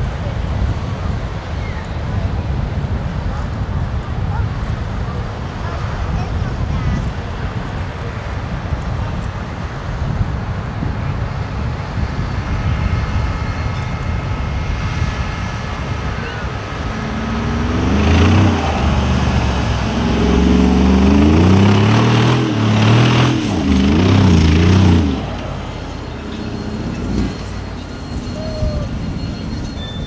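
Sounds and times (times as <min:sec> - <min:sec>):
wind on microphone: 0:00.0 - 0:26.2, 0:26.8 - 0:30.0
engine revving: 0:14.7 - 0:30.0.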